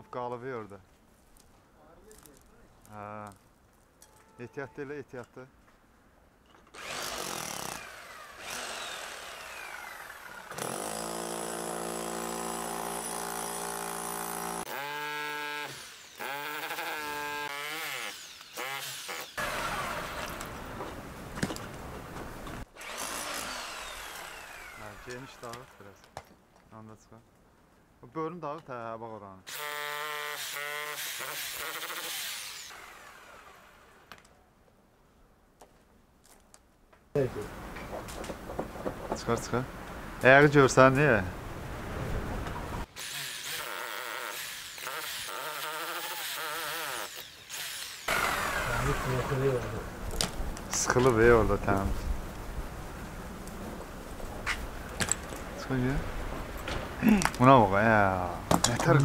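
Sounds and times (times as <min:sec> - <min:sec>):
power drill drilling into stone: 0:06.8 - 0:20.5, 0:22.8 - 0:25.8, 0:29.5 - 0:33.7, 0:43.0 - 0:49.7.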